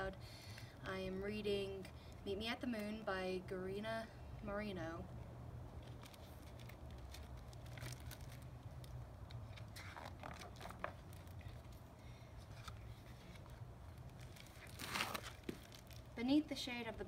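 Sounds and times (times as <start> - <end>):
steady low hum: 0.0 - 17.0
book pages rustling: 5.8 - 16.1.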